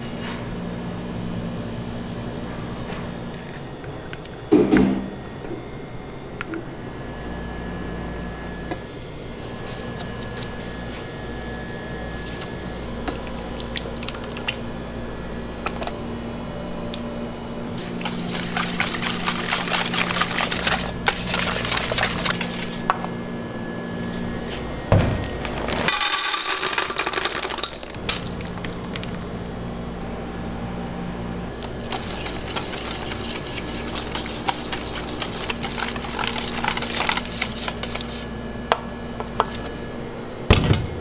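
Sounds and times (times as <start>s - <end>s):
steady low hum: 0.0s - 41.0s.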